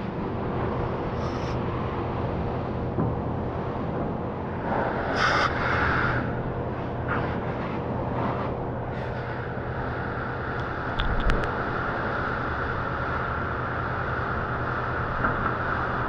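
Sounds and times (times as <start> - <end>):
low pump hum: 0.0 - 16.0
high-pressure water spray hissing: 1.2 - 1.6.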